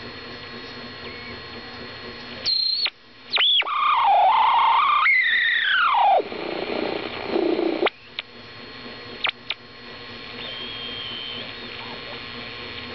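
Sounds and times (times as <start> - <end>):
radio whistling tones: 2.5 - 8.2, 10.3 - 12.2
radio static and hiss: 3.3 - 12.9.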